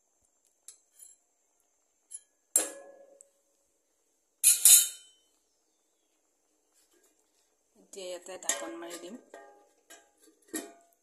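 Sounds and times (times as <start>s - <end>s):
spoon clanking on metal pan: 4.4s - 5.1s, 8.4s - 11.0s.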